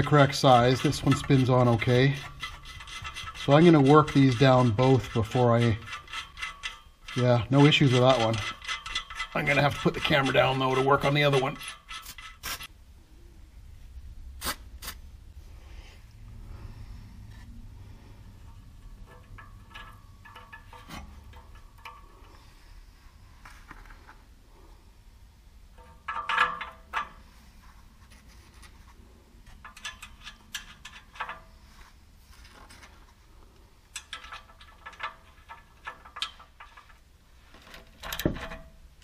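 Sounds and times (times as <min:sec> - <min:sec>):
small metal parts clinking: 0:33.9 - 0:37.1.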